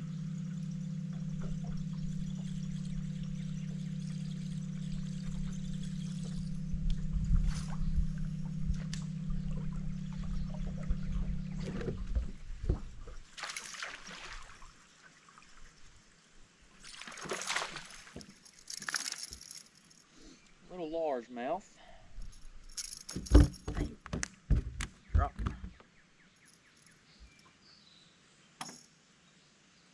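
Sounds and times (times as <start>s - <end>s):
electric motor hum: 0.0s - 13.3s
water splash: 7.3s - 15.7s, 16.7s - 19.7s.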